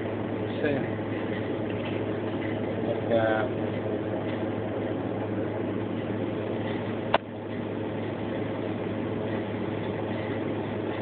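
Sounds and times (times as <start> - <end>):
vending machine humming: 0.0 - 11.0.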